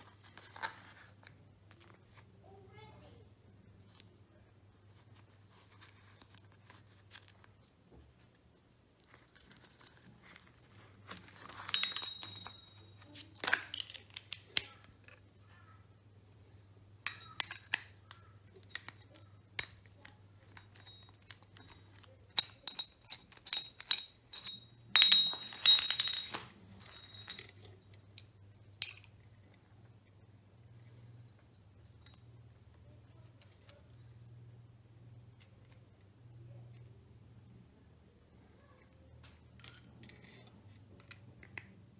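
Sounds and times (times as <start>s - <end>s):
metal sockets clinking: 11.6s - 14.7s, 17.1s - 27.8s.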